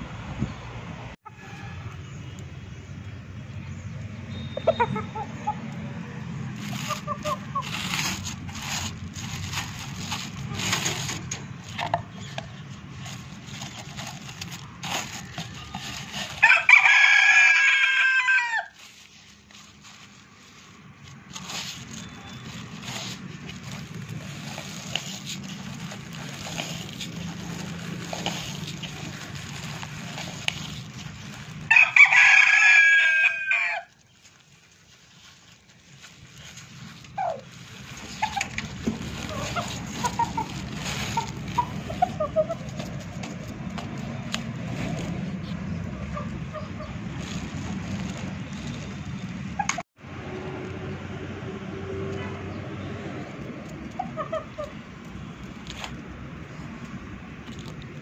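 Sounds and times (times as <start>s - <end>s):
clicks and rustles: 6.6s - 16.4s, 18.8s - 31.7s, 33.9s - 45.7s, 53.2s - 58.0s
rooster crowing: 16.4s - 18.8s, 31.7s - 34.0s.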